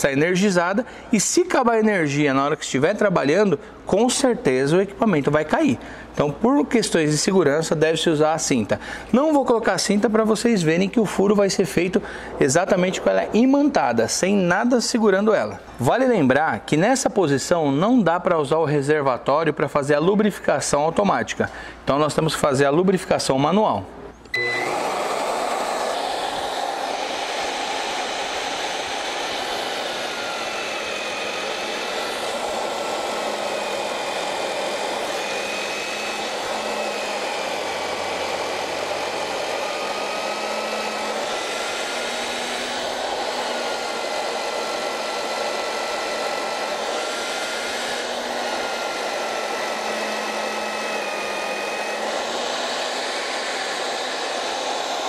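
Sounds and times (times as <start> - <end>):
drill boring through steel: 24.4 - 55.0.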